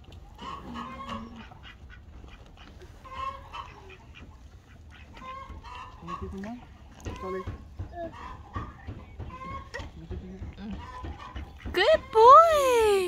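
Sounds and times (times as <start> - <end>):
poultry calling: 0.3 - 10.0.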